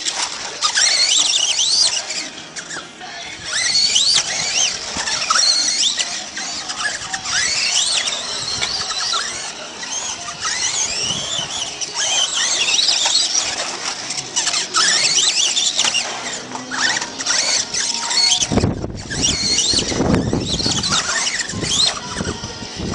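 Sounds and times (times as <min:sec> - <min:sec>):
toy truck motors whining: 0:00.0 - 0:22.9.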